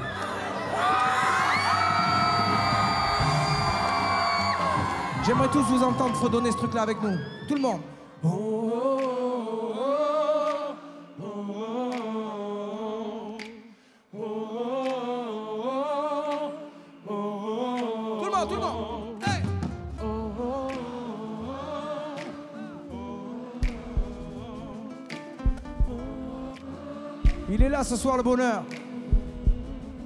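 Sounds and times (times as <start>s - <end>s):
crowd humming a melody: 14.2s - 30.0s.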